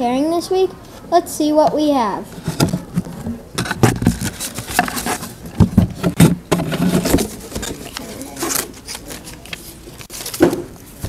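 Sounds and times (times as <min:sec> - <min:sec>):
cardboard box being handled: 0:02.4 - 0:08.8.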